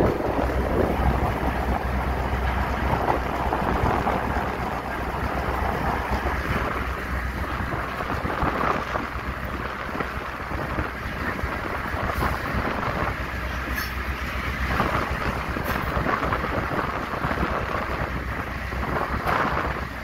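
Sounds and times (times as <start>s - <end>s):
diesel locomotive rumbling: 0.0s - 20.0s
wind buffeting microphone: 0.0s - 20.0s.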